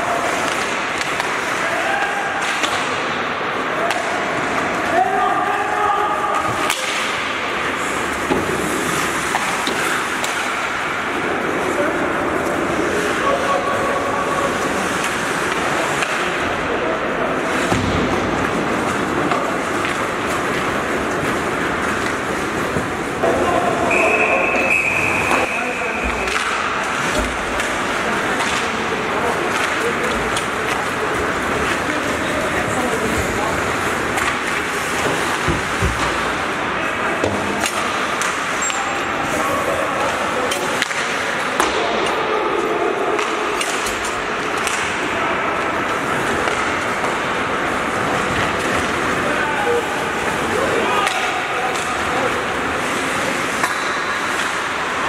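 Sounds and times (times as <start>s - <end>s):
indistinct voices in hall: 0.0s - 55.0s
hockey sticks and puck knocking: 0.3s - 3.2s, 6.3s - 7.5s, 8.1s - 10.8s, 25.2s - 32.0s, 33.7s - 36.4s, 40.1s - 42.2s, 43.1s - 45.1s, 52.8s - 55.0s
skates scraping on ice: 6.4s - 16.5s
referee's whistle: 23.9s - 25.8s.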